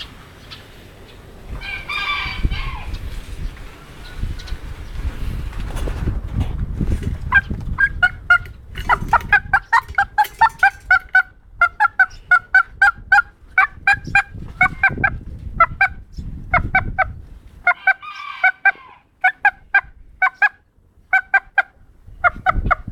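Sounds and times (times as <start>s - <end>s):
rooster clucking: 1.5s - 3.1s, 7.1s - 22.9s
rooster rough call: 1.6s - 2.9s, 17.8s - 19.1s.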